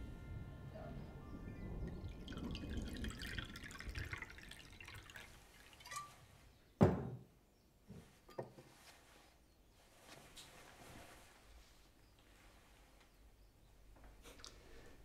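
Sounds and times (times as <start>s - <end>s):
wine pouring into glass: 1.9s - 6.3s.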